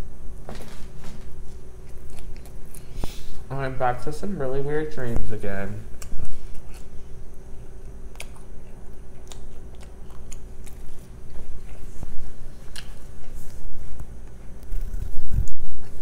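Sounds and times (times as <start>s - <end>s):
person chewing food: 1.4s - 3.5s, 5.9s - 16.0s
soft mouth clicks: 9.2s - 10.8s.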